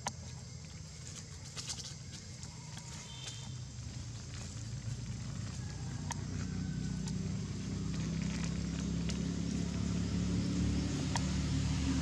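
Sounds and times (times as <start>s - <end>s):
faint crackles: 0.0s - 9.3s
engine low hum: 0.0s - 12.0s.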